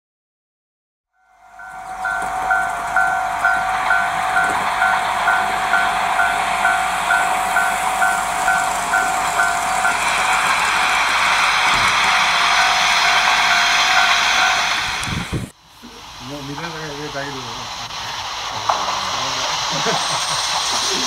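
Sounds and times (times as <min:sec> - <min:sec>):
level-crossing bell ringing: 0:01.2 - 0:10.6
steady hiss: 0:01.6 - 0:21.0.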